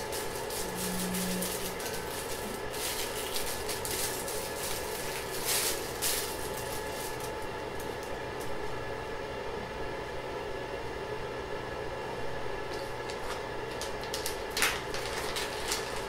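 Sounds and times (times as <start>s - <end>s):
plastic packaging crinkling: 0.0s - 8.5s, 12.7s - 16.0s.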